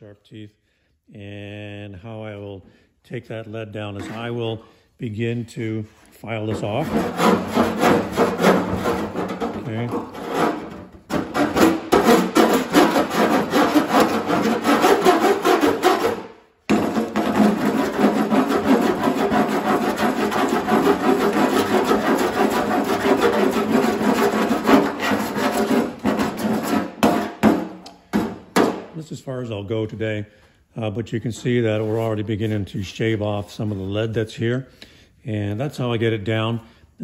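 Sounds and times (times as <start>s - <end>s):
file rasping on metal: 6.5s - 27.4s.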